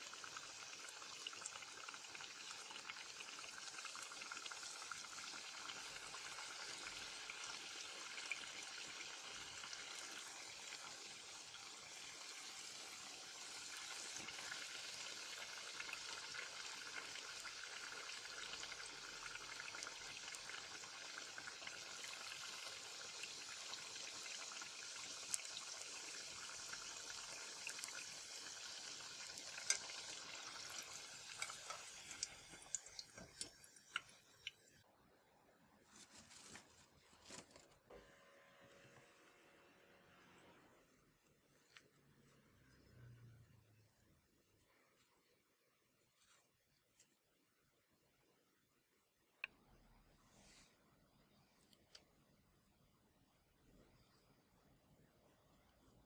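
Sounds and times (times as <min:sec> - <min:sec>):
oil sizzling and bubbling: 0:00.0 - 0:34.9.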